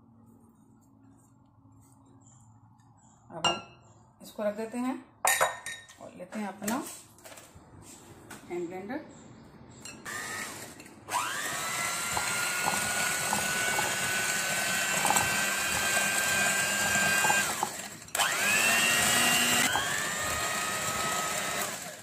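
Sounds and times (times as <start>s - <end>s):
electric hand mixer whining: 10.1s - 22.0s.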